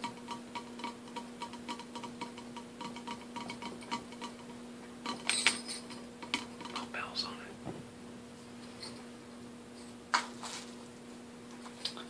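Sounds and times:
fingers tapping on cocktail shaker: 0.0 - 4.5.

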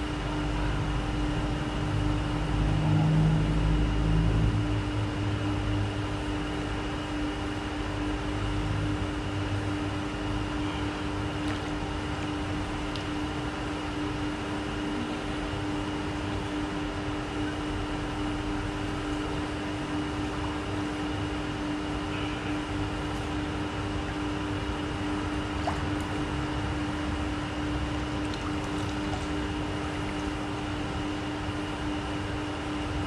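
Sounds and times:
machine hum with high whine: 0.0 - 33.0
moving water: 25.4 - 27.0, 27.8 - 31.0.

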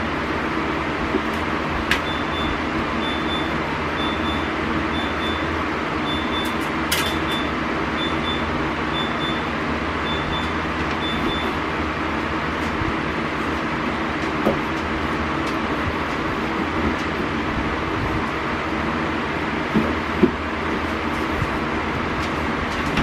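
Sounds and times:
mechanical hum: 0.0 - 23.0
refrigerator alarm beeping: 1.9 - 11.7.

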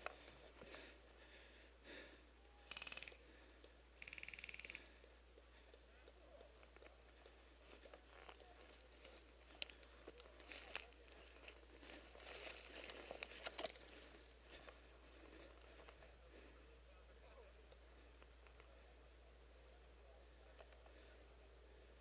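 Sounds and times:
twigs crackling and snapping: 8.1 - 14.8.

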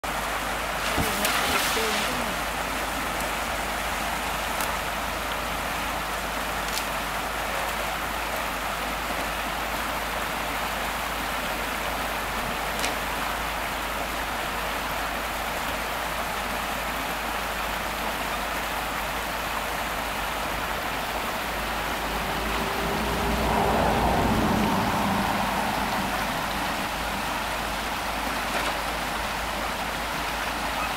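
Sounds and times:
stream rushing over stones: 0.0 - 30.9
tractor engine hum: 17.4 - 30.9.

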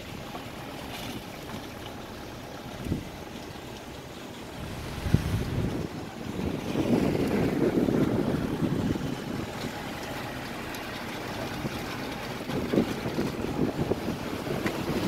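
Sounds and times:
wind buffeting microphone: 2.7 - 3.3, 4.4 - 15.0.

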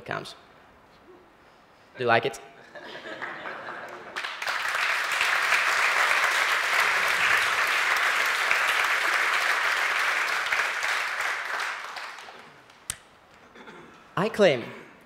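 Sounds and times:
crowd applauding: 2.9 - 12.9.

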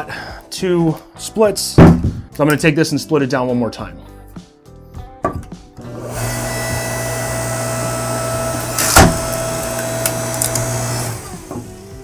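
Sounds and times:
log splitter motor humming: 5.8 - 12.0
wood splitting crack: 8.4 - 11.1.

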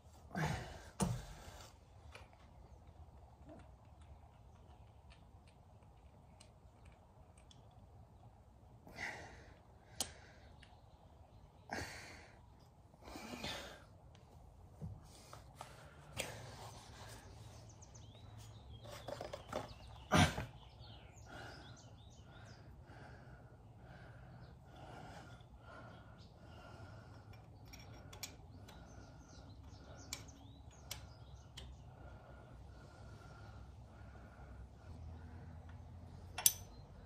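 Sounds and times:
small birds chirping: 0.3 - 14.3, 15.1 - 37.0
metal parts clicking: 36.3 - 36.8.

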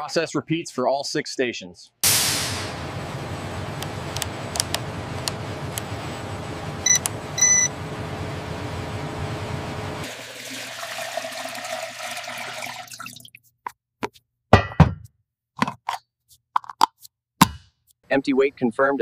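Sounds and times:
liquid pouring into funnel: 10.0 - 13.4.

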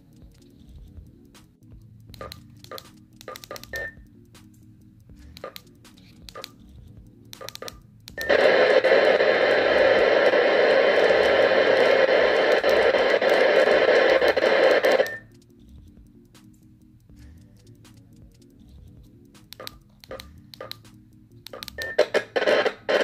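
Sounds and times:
radio transceiver beeping: 8.2 - 15.3
radio static hiss: 8.3 - 15.1.

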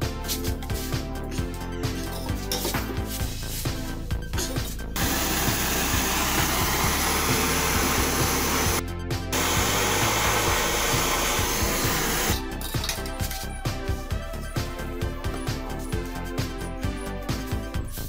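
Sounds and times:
background music: 0.0 - 18.0
blowtorch hissing: 5.0 - 8.8, 9.4 - 12.4.

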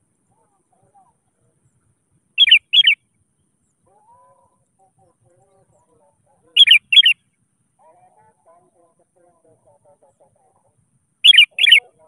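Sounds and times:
bird warbling faintly: 0.0 - 9.3, 9.9 - 12.0
bird calling bright notes: 2.4 - 3.0, 6.6 - 7.2, 11.2 - 11.9.

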